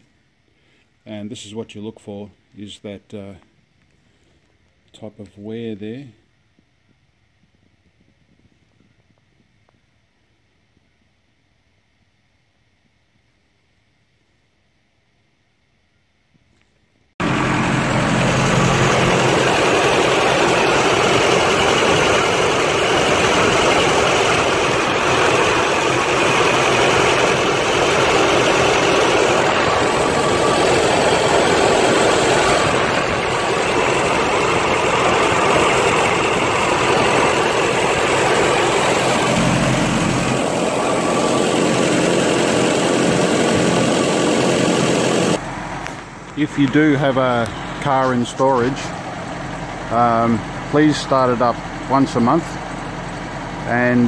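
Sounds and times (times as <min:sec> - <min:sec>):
car engine idling: 0:17.2 - 0:54.0.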